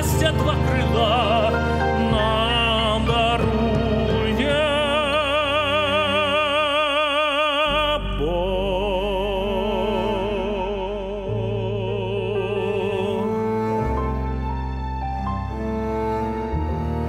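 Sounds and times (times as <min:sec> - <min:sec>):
man singing operatically: 0:00.0 - 0:13.6
instrumental accompaniment: 0:00.0 - 0:17.0.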